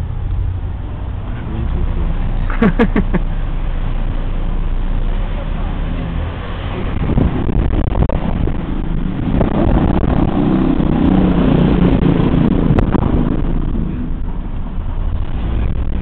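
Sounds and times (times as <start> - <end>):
car road and engine noise: 0.0 - 16.0
wind buffeting microphone: 3.2 - 16.0.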